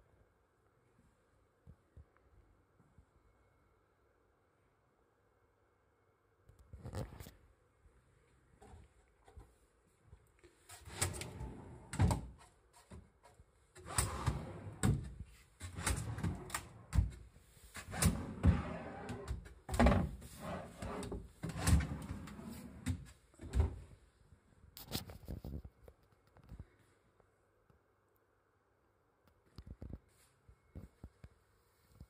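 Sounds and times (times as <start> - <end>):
drawer sliding on runners: 10.8 - 12.3, 13.8 - 23.7.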